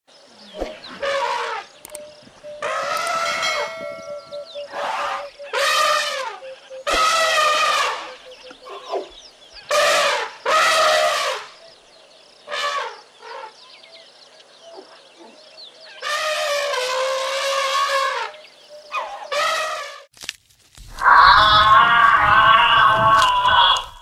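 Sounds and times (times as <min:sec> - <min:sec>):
elephants trumpeting calls: 0:00.9 - 0:01.7, 0:02.4 - 0:09.0, 0:09.7 - 0:11.5, 0:16.0 - 0:20.1, 0:21.0 - 0:24.0.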